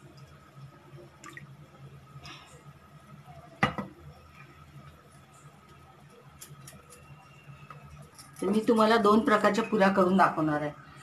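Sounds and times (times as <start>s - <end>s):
oil trickling into a pan: 0.0s - 6.4s.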